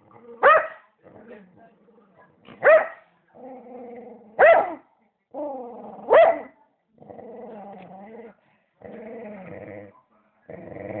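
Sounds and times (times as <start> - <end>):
dog barking: 0.4 - 0.9, 2.6 - 3.0, 4.4 - 4.8, 6.1 - 6.5
dog growling: 3.3 - 4.4, 5.3 - 6.2, 7.0 - 9.9, 10.5 - 11.0.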